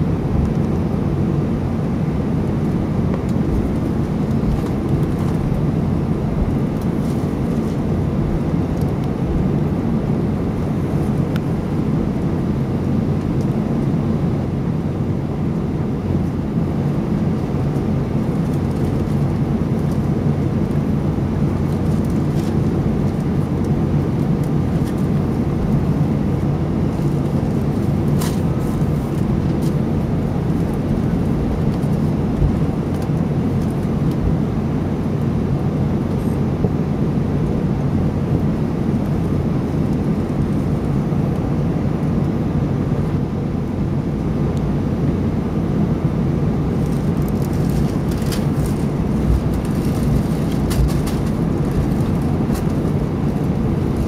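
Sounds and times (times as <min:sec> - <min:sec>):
jet engines rumbling in cabin: 0:00.0 - 0:54.0.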